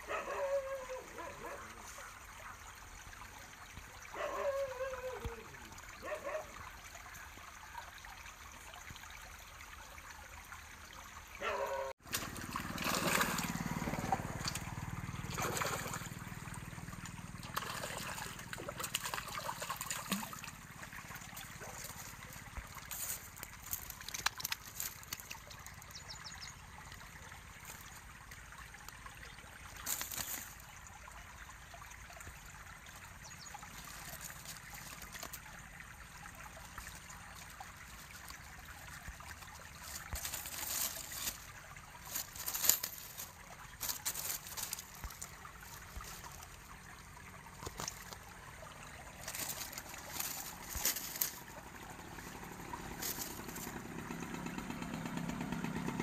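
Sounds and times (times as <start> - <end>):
stream trickling: 0.0 - 56.0
dry reeds crackling: 17.5 - 26.2, 29.7 - 30.6, 33.4 - 35.5, 36.6 - 46.8, 47.4 - 54.4.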